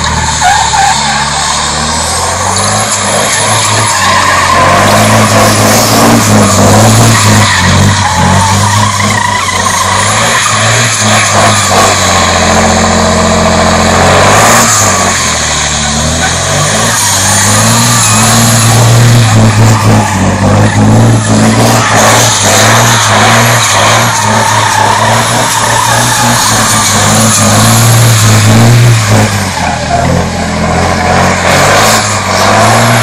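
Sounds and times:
diesel engine revving: 0:00.0 - 0:33.0
tyres skidding: 0:00.0 - 0:33.0.

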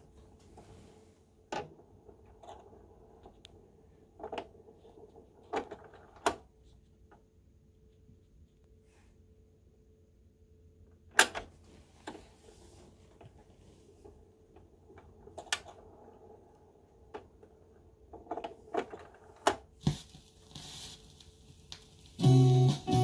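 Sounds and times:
vinyl crackle and hiss: 0:19.2 - 0:23.0.

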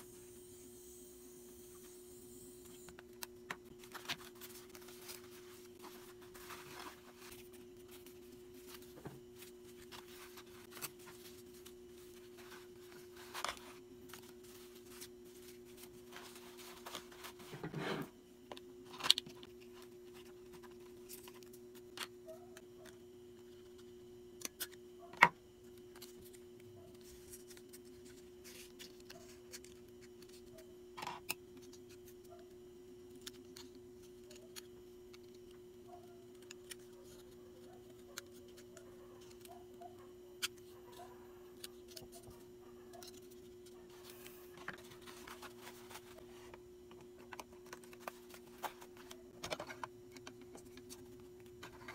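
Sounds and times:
packaging handled rustling: 0:03.1 - 0:17.6, 0:41.6 - 0:51.9.

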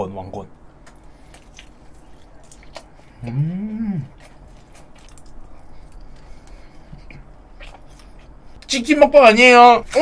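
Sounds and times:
chewing with mouth closed: 0:00.8 - 0:08.6
person humming: 0:03.2 - 0:04.2.

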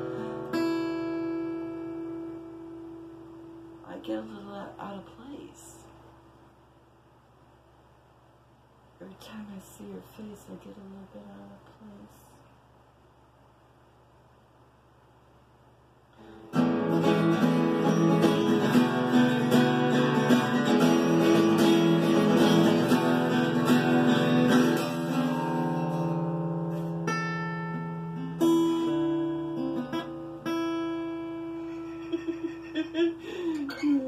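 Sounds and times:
acoustic guitar strumming: 0:00.0 - 0:04.0, 0:16.2 - 0:32.2
plucked guitar notes: 0:16.5 - 0:31.9.

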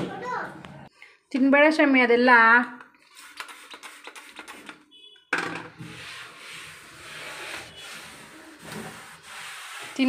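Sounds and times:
cloth scrubbing a shelf: 0:05.8 - 0:10.0.

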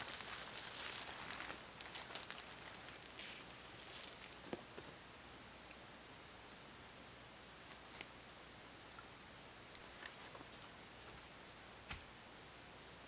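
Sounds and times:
wooden pole crackling on twigs: 0:00.0 - 0:04.8.

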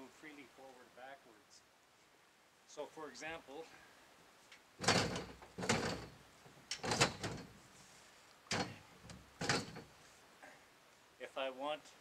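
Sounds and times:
metal frame clunks and scrapes: 0:04.8 - 0:07.9, 0:08.5 - 0:10.0.

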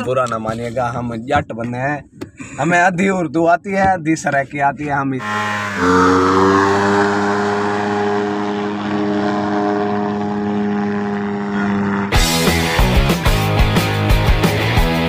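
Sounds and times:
ultralight engine and propeller droning: 0:05.2 - 0:13.4
music: 0:12.2 - 0:15.0.

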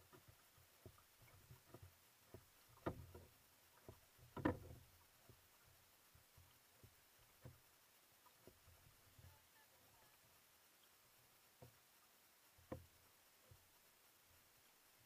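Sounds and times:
kayak paddle splashing: 0:00.0 - 0:10.0.

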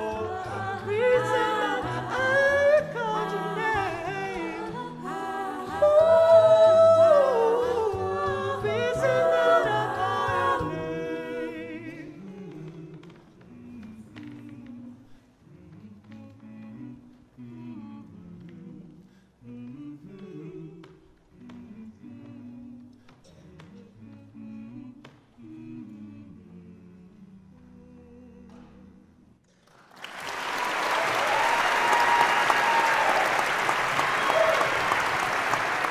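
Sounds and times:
a cappella group singing chord: 0:00.0 - 0:29.3
backing vocal harmonies: 0:00.0 - 0:29.4, 0:30.4 - 0:35.9
audience applause: 0:29.7 - 0:35.9.

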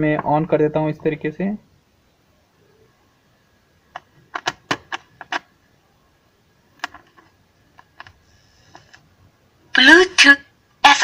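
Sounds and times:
plastic clicks and clacks: 0:03.9 - 0:05.5, 0:06.8 - 0:09.0.

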